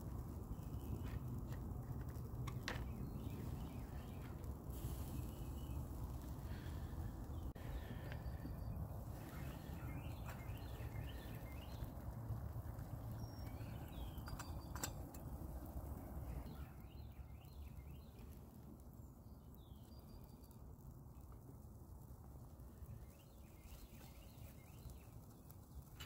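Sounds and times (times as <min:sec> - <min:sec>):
small birds chirping: 0:00.0 - 0:21.6, 0:22.5 - 0:26.0.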